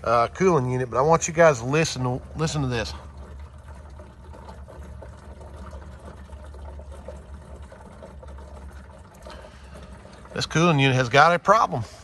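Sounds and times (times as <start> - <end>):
refrigerator liquid bubbling: 0.0 - 12.0
refrigerator low hum: 0.0 - 12.0.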